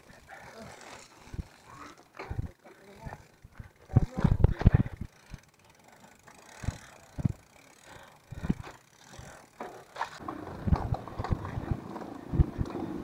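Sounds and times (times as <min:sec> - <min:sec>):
bicycle freewheel hub ticking: 0:00.0 - 0:13.0
dull knocks from bike: 0:09.6 - 0:12.8.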